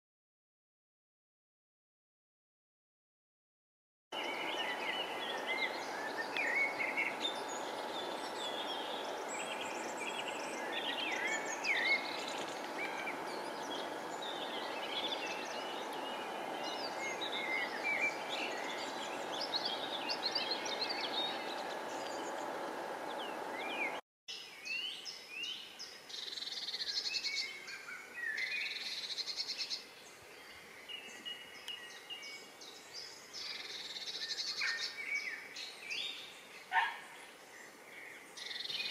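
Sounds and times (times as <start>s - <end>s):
steady rushing noise: 4.2s - 24.0s
birds singing and chirping: 4.2s - 38.9s.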